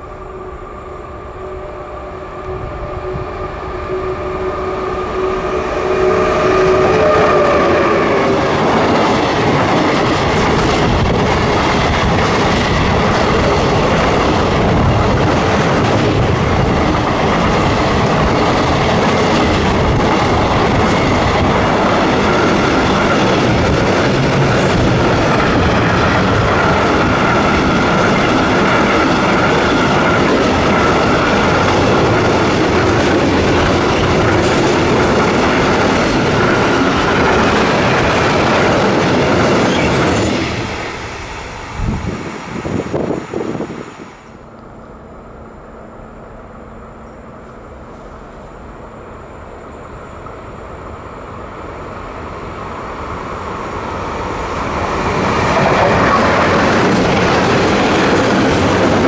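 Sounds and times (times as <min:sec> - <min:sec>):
train horn tone: 0:00.0 - 0:08.5
freight train rumbling past: 0:00.0 - 0:59.0
faint high squeal: 0:46.9 - 0:50.7.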